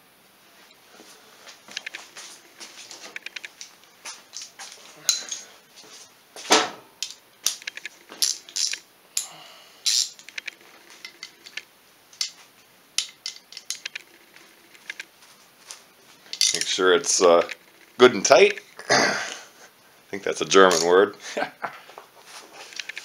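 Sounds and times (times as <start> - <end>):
hand tools clinking on metal: 4.3 - 5.5, 8.2 - 10.3, 16.3 - 16.8, 20.6 - 21.0.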